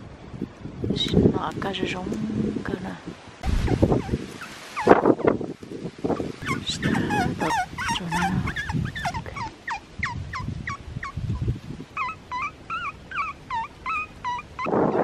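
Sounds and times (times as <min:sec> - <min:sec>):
wind on microphone: 0:00.0 - 0:15.0
animal rapid short calls: 0:06.4 - 0:10.8.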